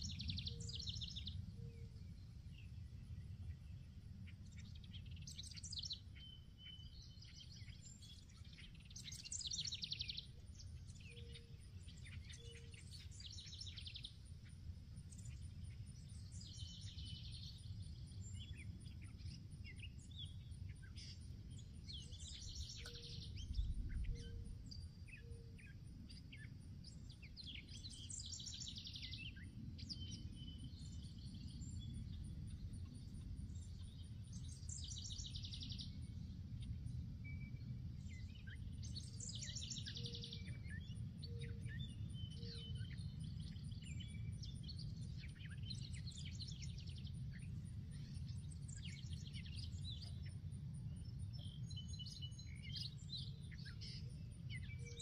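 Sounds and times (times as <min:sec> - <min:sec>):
steady low rumble: 0:13.1 - 0:39.3.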